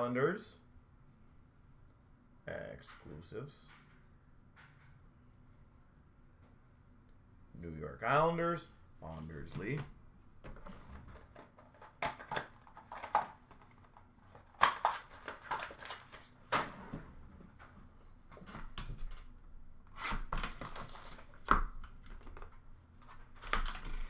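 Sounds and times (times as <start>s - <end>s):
packaging rustling: 10.5s - 16.4s, 20.3s - 22.5s.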